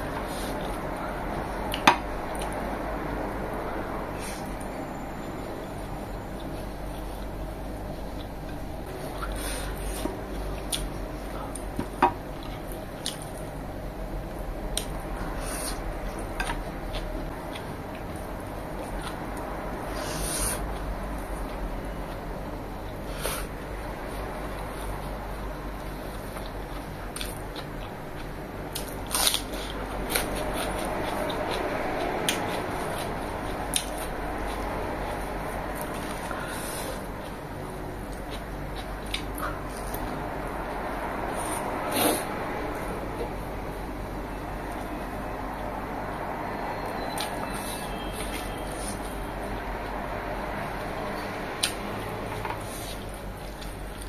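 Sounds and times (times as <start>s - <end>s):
chewing and squishing food: 0.0s - 54.0s
steady low hum: 0.0s - 54.0s
chewing and biting: 25.8s - 37.4s, 38.0s - 40.2s.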